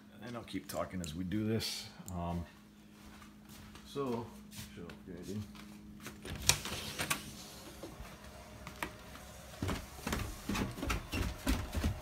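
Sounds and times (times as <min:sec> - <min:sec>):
footsteps on wooden stairs: 0:07.8 - 0:12.0.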